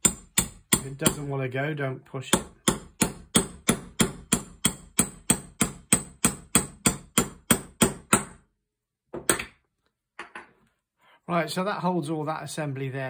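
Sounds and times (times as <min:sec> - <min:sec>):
hammer tapping metal: 0:00.0 - 0:01.3, 0:02.3 - 0:08.4.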